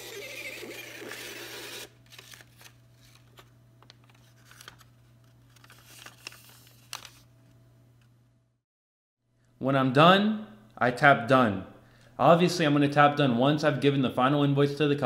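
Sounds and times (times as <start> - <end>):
thermal printer running: 0.0 - 2.3
receipt paper rustling and tearing: 0.0 - 7.3.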